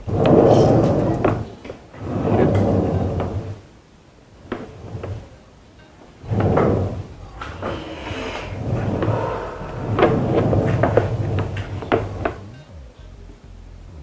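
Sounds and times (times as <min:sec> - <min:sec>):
metal chassis scraping and bumping: 0:00.0 - 0:03.6, 0:06.2 - 0:12.6.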